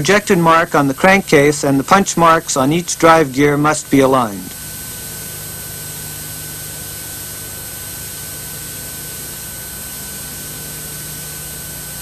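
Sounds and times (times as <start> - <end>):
steady hiss: 0.0 - 7.6
faint hum: 0.0 - 12.0.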